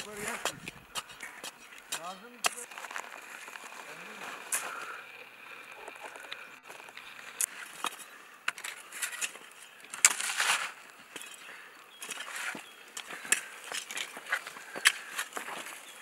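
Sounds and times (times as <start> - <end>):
shovels scraping dry soil: 0.0 - 5.0, 5.8 - 16.0
soil clods falling: 5.7 - 16.0.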